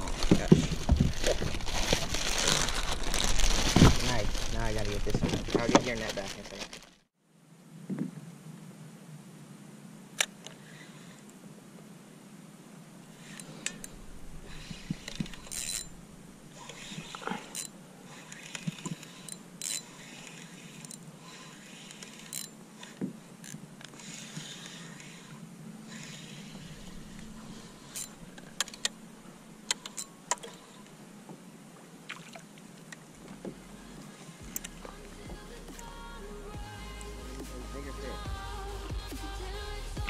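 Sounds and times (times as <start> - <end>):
water lapping against kayak: 13.1 - 35.7
fishing tackle clicking: 14.8 - 15.9.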